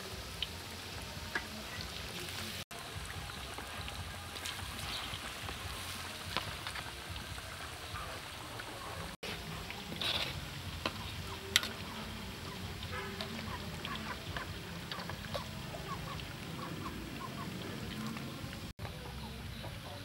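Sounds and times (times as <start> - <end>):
hot oil bubbling in wok: 0.0 - 18.7
poultry calling: 11.0 - 18.2.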